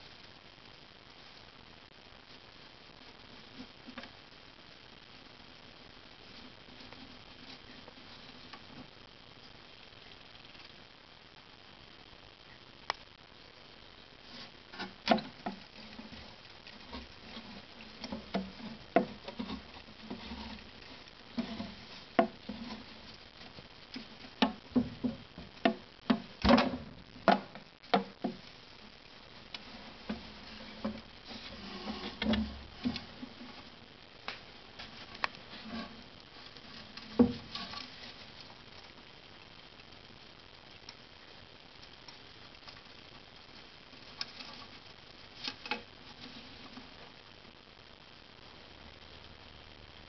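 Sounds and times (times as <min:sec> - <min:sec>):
mouse scrabbling and scratching: 0:14.3 - 0:25.2.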